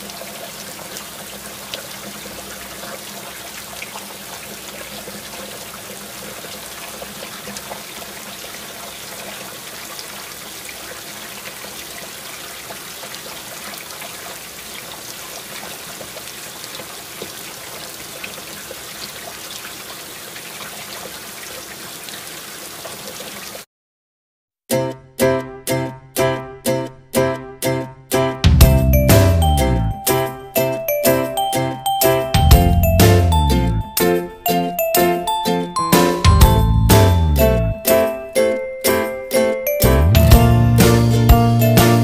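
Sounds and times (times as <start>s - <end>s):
water drips and taps: 0.0s - 22.2s.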